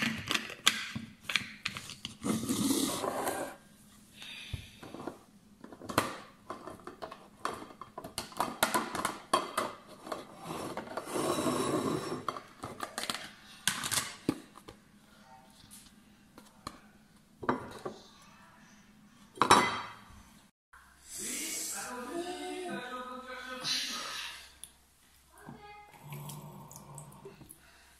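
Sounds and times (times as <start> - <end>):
tableware clinking and knocking: 19.4 - 20.0.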